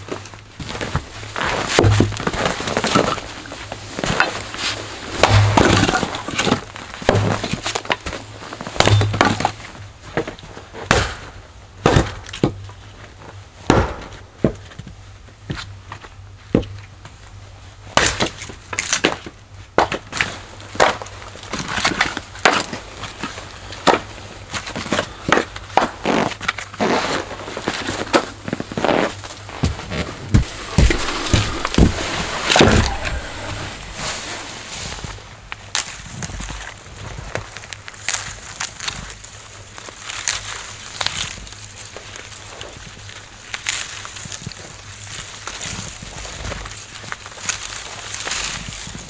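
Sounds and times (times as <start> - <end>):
axe splitting wood: 1.7 - 3.2, 5.1 - 8.0, 8.8 - 9.6, 10.9 - 12.6, 13.7 - 14.6, 20.8 - 22.8, 30.3 - 33.5.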